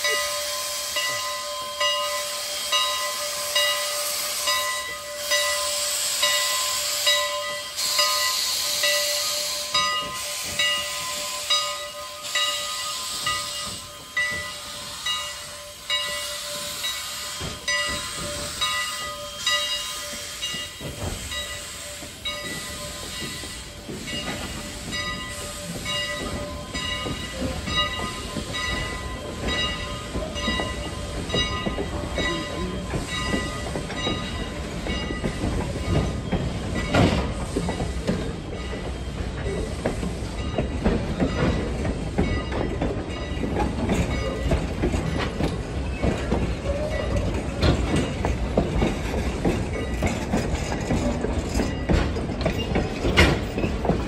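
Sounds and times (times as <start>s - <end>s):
steam hissing: 0.0s - 54.0s
rumble of coaches rolling: 40.4s - 54.0s.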